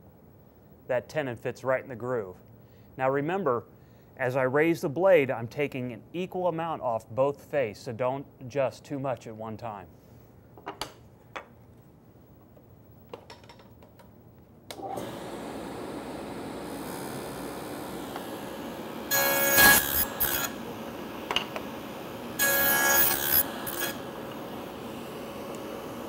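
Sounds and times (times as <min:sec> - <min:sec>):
table saw running: 0:14.8 - 0:26.0
saw blade cutting board: 0:16.6 - 0:26.0.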